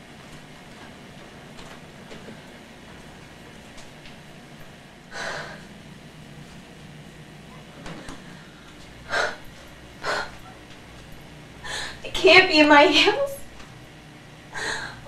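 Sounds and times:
faint low hum: 0.0 - 15.0
woman gasping: 5.1 - 5.7, 8.1 - 10.4, 11.6 - 12.1, 14.6 - 15.0
woman breathing heavily: 5.1 - 5.8, 7.9 - 10.5, 11.6 - 12.1, 14.5 - 15.0.

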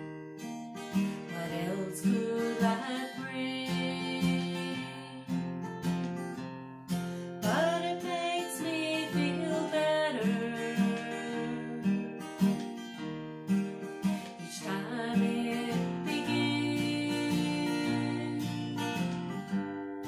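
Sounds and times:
acoustic guitar strumming: 0.0 - 20.0
woman singing: 1.2 - 5.5, 7.4 - 12.6, 14.3 - 19.1.

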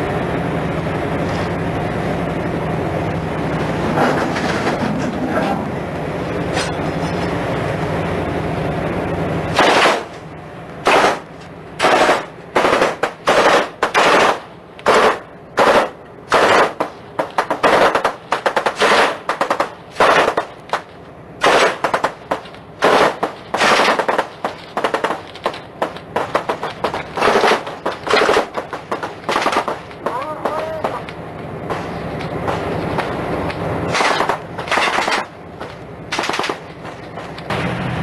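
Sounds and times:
steady rumble: 0.0 - 38.0
automatic gunfire bursts: 9.6 - 10.1, 10.8 - 11.2, 11.8 - 20.8, 21.4 - 31.1, 33.9 - 35.3, 36.1 - 36.7.

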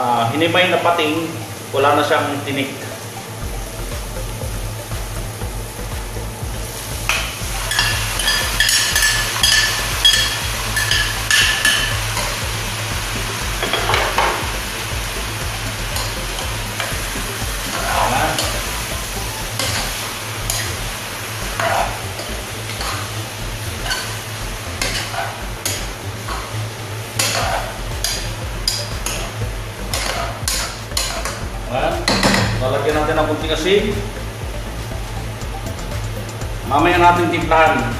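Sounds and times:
meat sizzling in a pot: 0.1 - 32.9
metal ladle scraping pot: 27.2 - 29.3.

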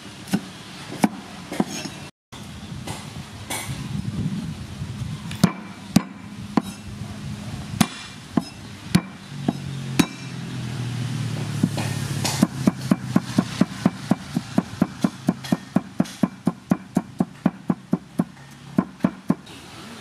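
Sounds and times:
quick chopping on wooden block: 11.6 - 19.4.

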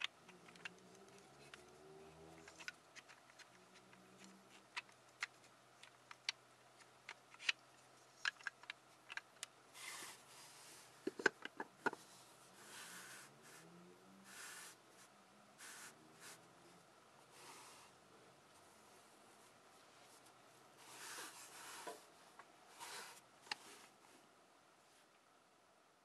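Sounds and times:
wooden puzzle pieces clicking: 0.0 - 7.6, 8.2 - 9.5.

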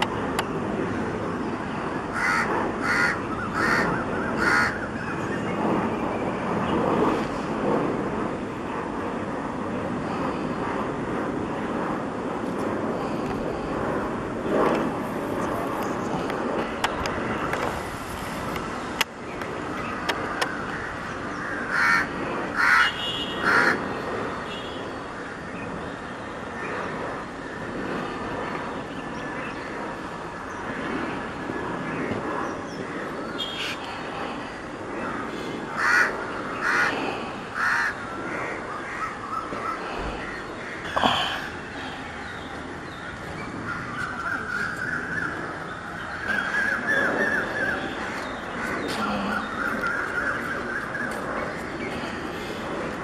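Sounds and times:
distant aircraft noise: 0.0 - 53.0
crows cawing: 2.1 - 4.9, 20.4 - 23.8, 35.1 - 41.5.

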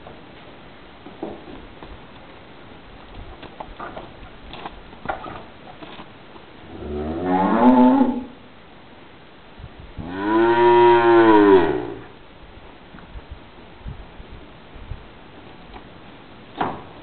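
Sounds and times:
cow mooing: 6.7 - 8.4, 10.0 - 12.1.

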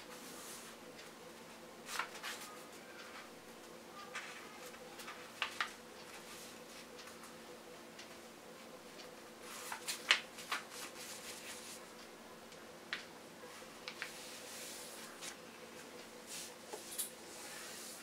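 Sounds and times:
paper rustling and crackling: 1.9 - 2.5, 4.2 - 6.5, 9.5 - 11.8.

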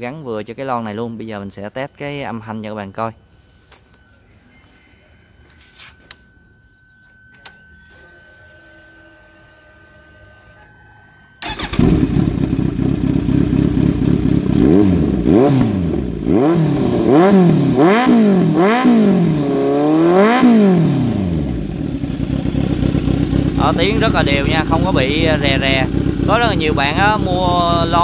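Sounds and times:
motorcycle engine idling and revving: 11.4 - 28.0.

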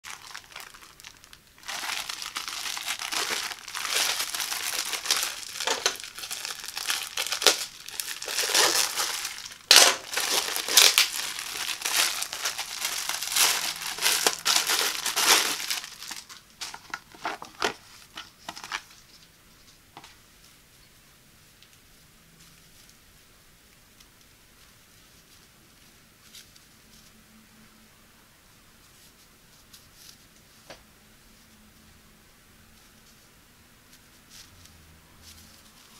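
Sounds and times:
plastic packaging crinkling: 0.0 - 19.0.

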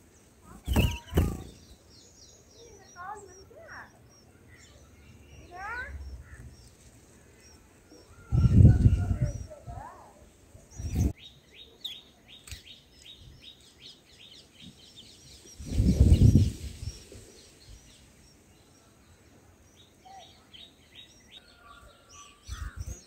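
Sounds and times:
nestlings chirping: 0.2 - 10.0.

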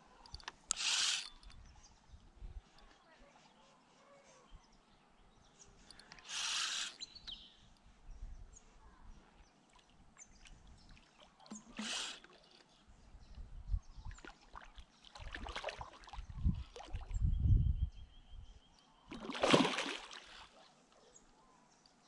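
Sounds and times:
fishing reel clicks and rustles: 0.0 - 1.8, 5.8 - 7.1, 11.5 - 12.7
splashes on water: 14.1 - 16.2, 19.1 - 20.6.

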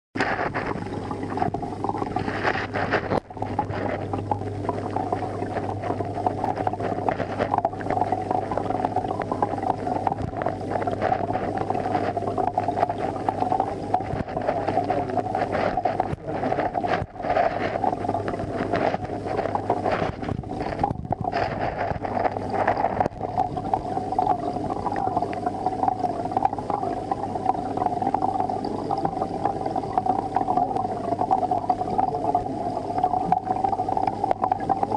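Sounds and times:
aquarium equipment humming: 0.2 - 34.9.

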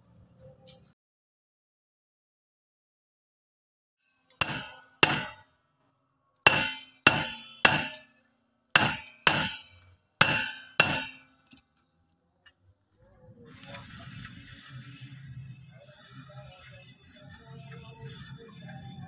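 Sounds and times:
steel bar clanging on brake drum: 4.3 - 5.4, 6.5 - 8.1, 8.8 - 11.6.

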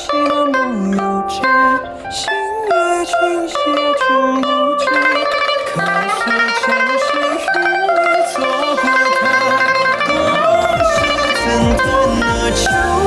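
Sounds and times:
backing track: 0.0 - 13.0
pipa tremolo melody: 3.6 - 13.0
sweeping electronic effect: 8.9 - 13.0.

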